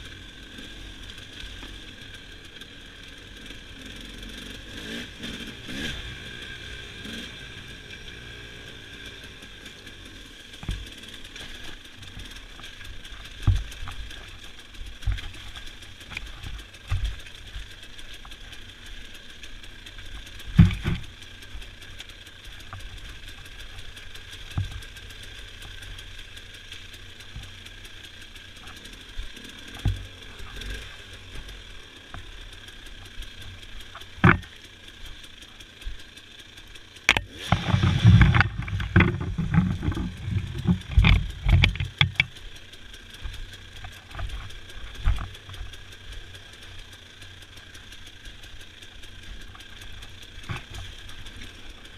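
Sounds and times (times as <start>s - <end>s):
dirt bike engine running low: 0.0s - 51.9s
bike knocking over bumps: 10.5s - 19.0s, 20.0s - 25.0s, 29.7s - 32.2s, 33.0s - 34.8s, 37.0s - 42.4s.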